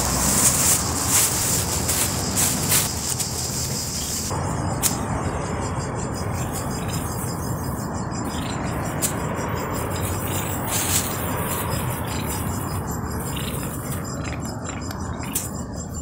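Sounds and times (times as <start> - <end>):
broad hiss: 0.0 - 5.0
insects trilling: 0.0 - 16.0.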